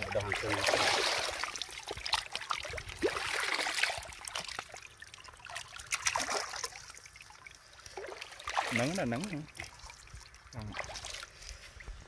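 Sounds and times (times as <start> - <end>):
soft trickle-like hiss: 3.8 - 12.0.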